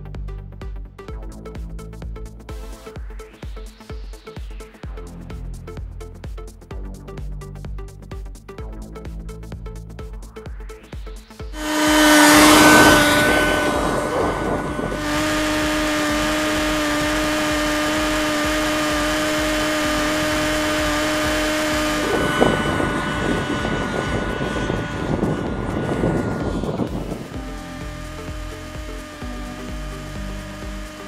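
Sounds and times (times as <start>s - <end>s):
model jet engine high whine: 11.5s - 31.0s
rough wind-like noise: 11.6s - 31.0s.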